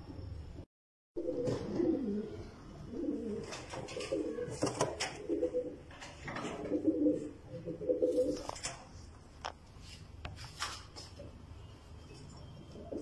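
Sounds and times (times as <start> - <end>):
pigeons cooing: 1.2 - 8.5, 12.7 - 13.0.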